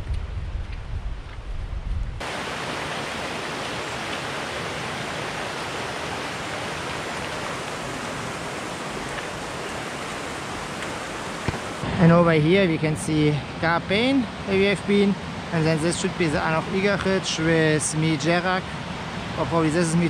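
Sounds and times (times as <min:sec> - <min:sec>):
wind buffeting microphone: 0:00.0 - 0:02.3
stream rushing over rocks: 0:02.2 - 0:20.0.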